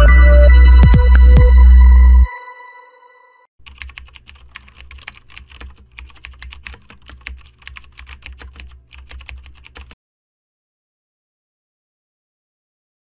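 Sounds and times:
keyboard key clicks: 3.6 - 10.0.

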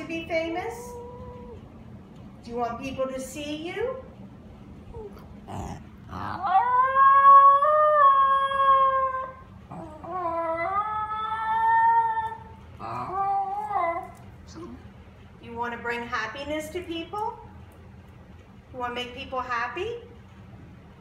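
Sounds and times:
dog yodeling: 5.0 - 14.2.

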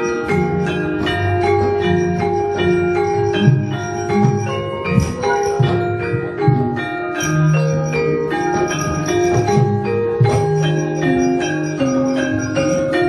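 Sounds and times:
drum strokes: 0.0 - 13.0
metallophones ringing fast runs: 0.0 - 13.0.

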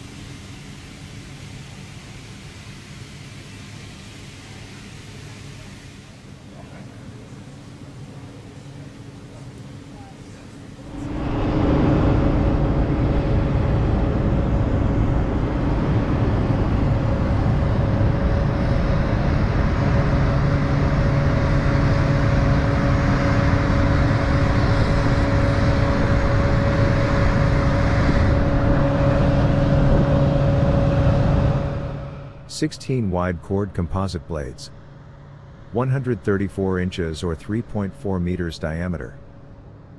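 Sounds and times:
machine drone with hiss: 0.0 - 39.9.

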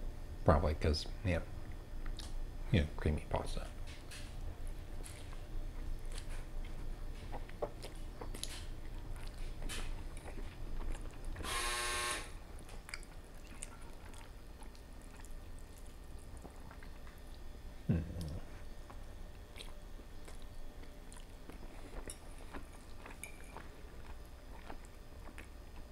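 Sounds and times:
person chewing: 5.0 - 11.4, 12.6 - 25.9.

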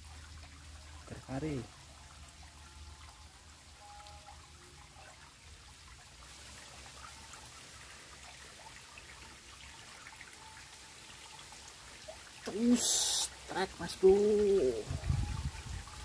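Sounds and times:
water trickling into river pool: 0.0 - 16.0.

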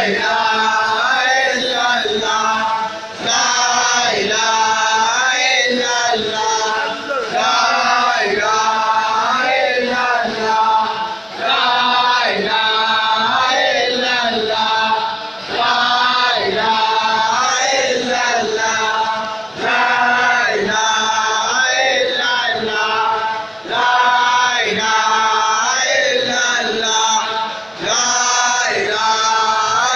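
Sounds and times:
men chanting in unison: 0.0 - 29.9.

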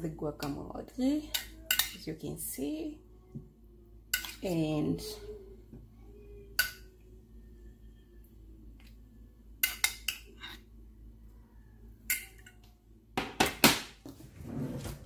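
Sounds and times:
metal spoon clinking on dishes: 1.3 - 2.0, 4.1 - 4.5, 9.6 - 10.6, 12.0 - 12.6
spoon scraping dish: 9.6 - 10.7.

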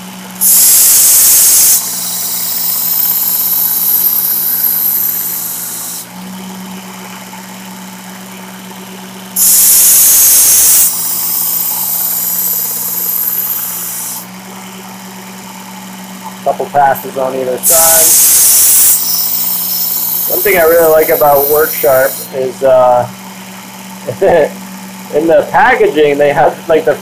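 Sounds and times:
sharpener motor hum: 0.0 - 16.0, 17.1 - 24.5
blade grinding on abrasive belt: 0.4 - 6.2, 9.4 - 14.3, 16.5 - 23.2.

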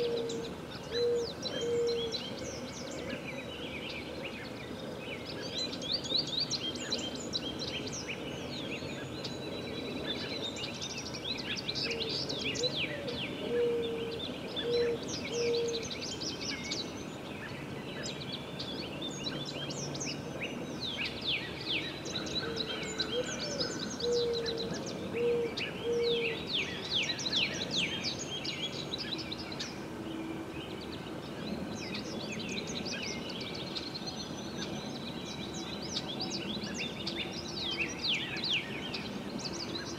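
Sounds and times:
low hooting bird call: 0.0 - 3.2, 11.9 - 15.9, 22.1 - 26.9
birds chirping and trilling: 0.0 - 39.9.

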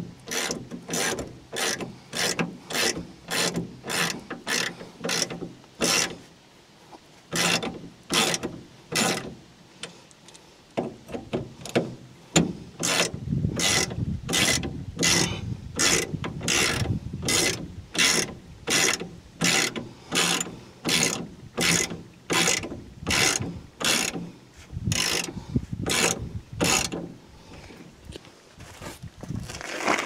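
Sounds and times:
socket ratchet clicking: 24.9 - 25.3, 25.9 - 27.0.

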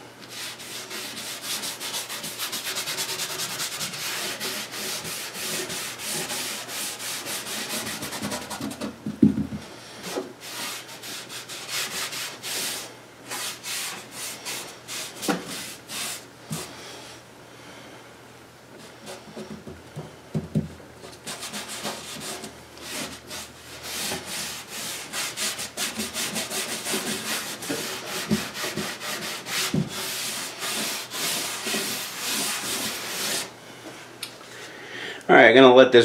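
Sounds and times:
cloth rag rubbing on wood: 0.3 - 8.8, 10.0 - 16.7, 21.3 - 33.5
dull knock: 9.0 - 9.6, 19.4 - 20.8.

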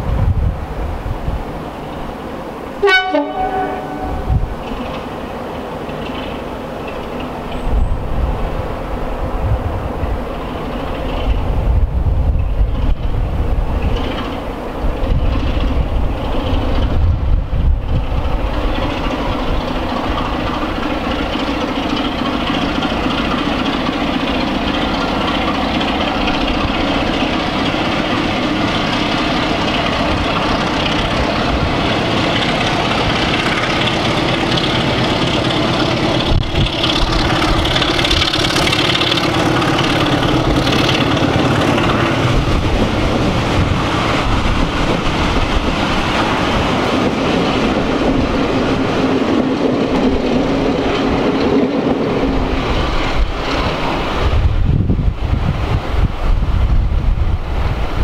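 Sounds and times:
diesel locomotive engine: 0.0 - 58.0
train wheels rattling on rails: 0.0 - 58.0.

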